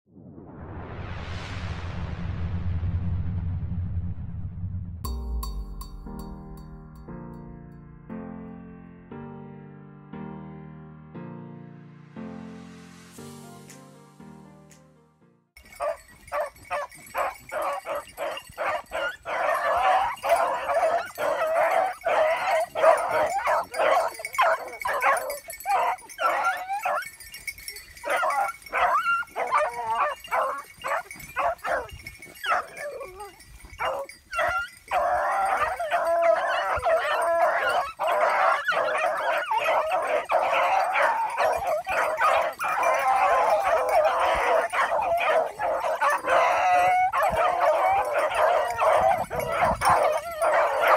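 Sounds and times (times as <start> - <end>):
hounds baying in chorus: 15.6 - 50.9.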